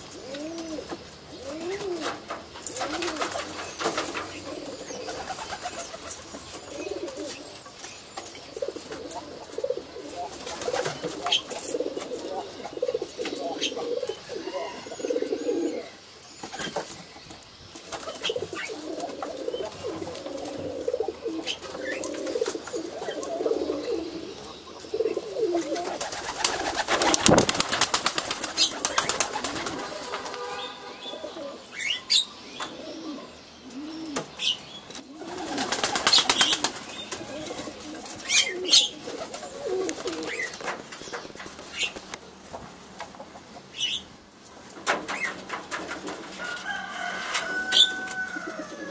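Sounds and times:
pigeons cooing: 0.0 - 17.0, 17.8 - 48.9
wings flapping: 1.6 - 7.4, 10.2 - 12.3, 25.5 - 30.6, 35.2 - 42.2, 44.7 - 48.2.

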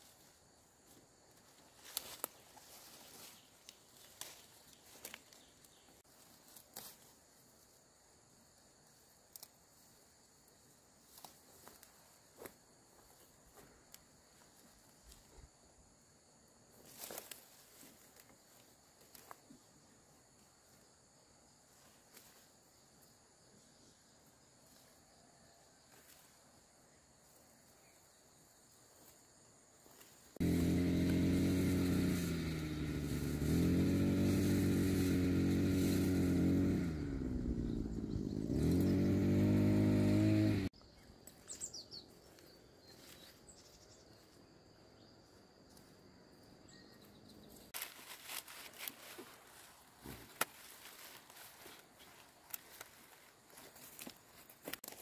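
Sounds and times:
rustling and snapping of fronds: 1.7 - 5.6, 16.8 - 18.4, 47.8 - 55.0
small engine running: 30.4 - 40.7.

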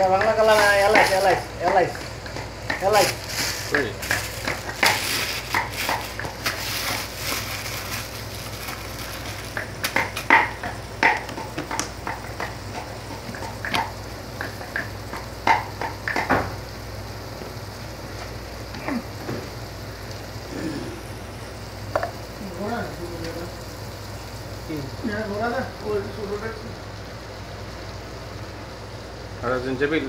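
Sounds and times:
oil popping and spattering: 0.0 - 16.8
onions sizzling in a frying pan: 0.0 - 30.0
steady low hum: 0.0 - 30.0.

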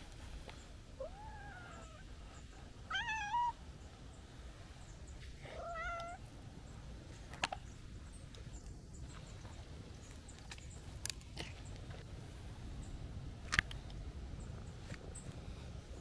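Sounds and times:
cat meowing: 2.9 - 3.6, 5.5 - 6.2.

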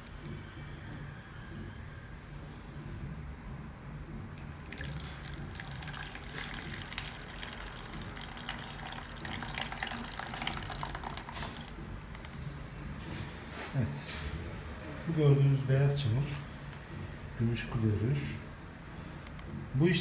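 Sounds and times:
liquid pouring into plastic tub: 4.4 - 11.8.

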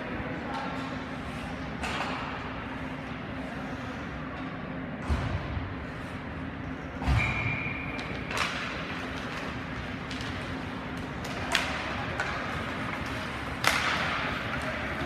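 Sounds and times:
low rink hum: 0.0 - 15.0
sticks and puck clacking: 7.9 - 15.0.

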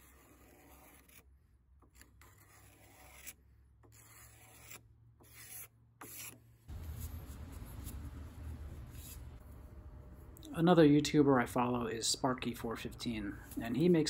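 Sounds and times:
scraper shaving wooden handle: 0.0 - 9.4.

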